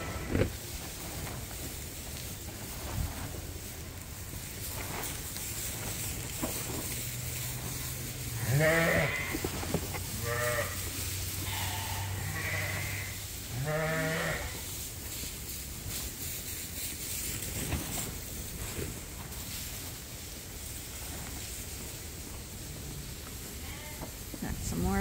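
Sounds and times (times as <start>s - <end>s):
sheep bleating: 0.0s - 0.4s, 8.3s - 9.4s, 10.1s - 14.6s, 23.6s - 24.1s.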